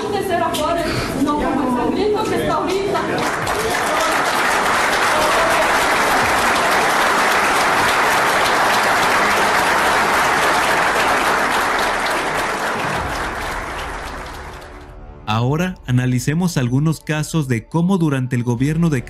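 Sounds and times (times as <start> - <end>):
audience applauding: 2.5 - 15.0.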